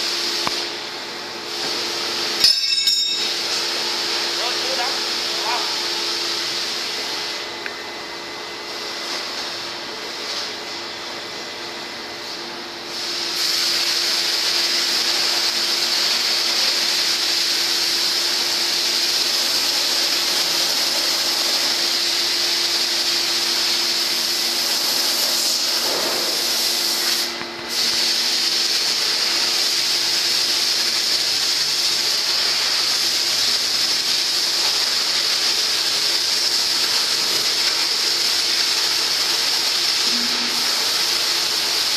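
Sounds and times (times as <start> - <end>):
machinery hiss: 1.4 - 7.6, 12.2 - 41.9.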